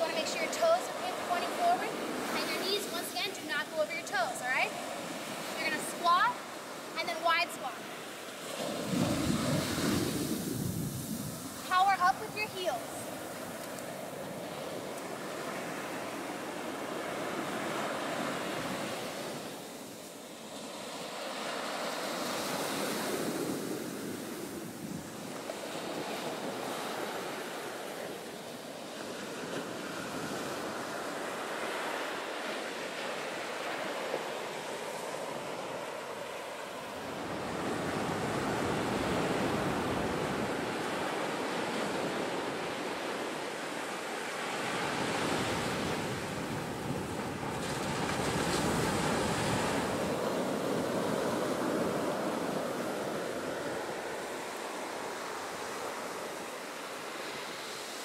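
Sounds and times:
ocean surf breaking: 0.0s - 58.0s
wind buffeting microphone: 8.6s - 15.9s.

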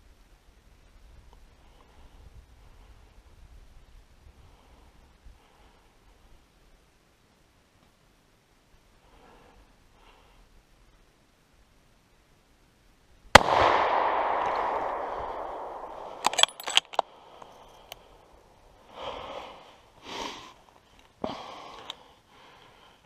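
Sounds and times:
rifle shot echoing: 13.3s - 18.2s
metallic clicks of rifle action: 13.7s - 18.1s.

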